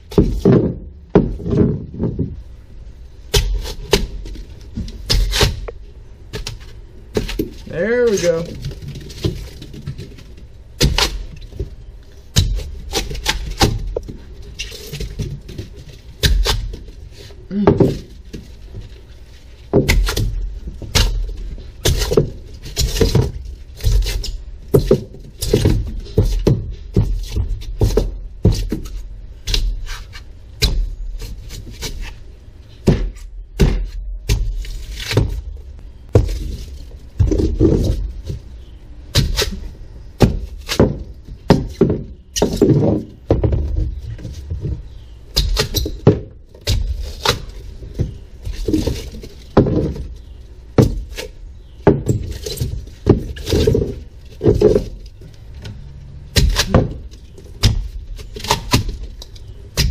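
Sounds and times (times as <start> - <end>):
foam chunks cracking: 3.2 - 32.2, 45.3 - 55.2, 56.3 - 59.9.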